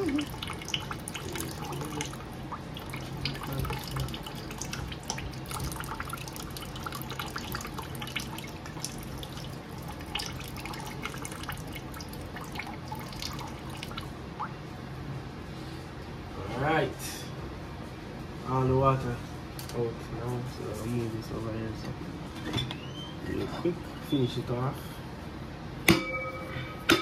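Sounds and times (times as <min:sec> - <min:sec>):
water trickling into a sink: 0:00.0 - 0:14.6.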